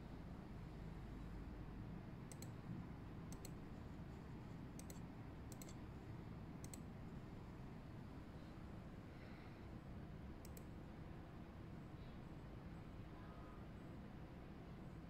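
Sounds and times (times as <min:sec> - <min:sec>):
computer mouse button clicks: 0:06.6 - 0:06.8.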